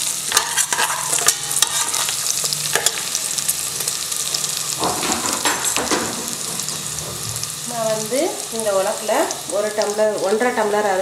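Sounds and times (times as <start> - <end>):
ghee sizzling in a pot: 0.0 - 11.0
spices crackling and popping: 0.0 - 11.0
metal spoon stirring in a pot: 0.1 - 7.6.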